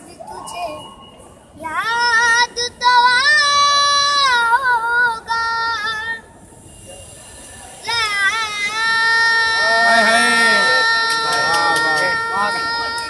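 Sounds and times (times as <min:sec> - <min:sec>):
boy singing solo: 0:07.8 - 0:13.0.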